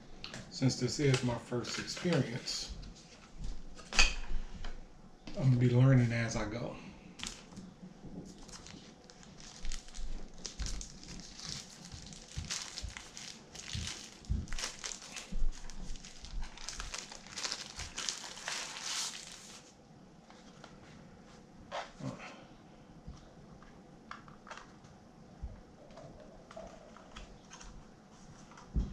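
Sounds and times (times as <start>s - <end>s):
packaging crinkling and rustling: 7.2s - 20.8s.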